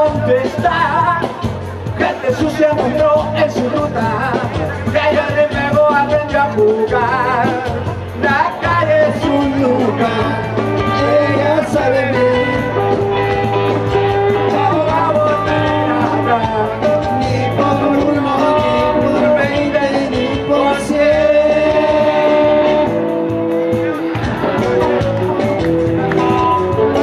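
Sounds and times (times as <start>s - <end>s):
electric guitar: 0.0s - 27.0s
rock music played loud: 0.0s - 27.0s.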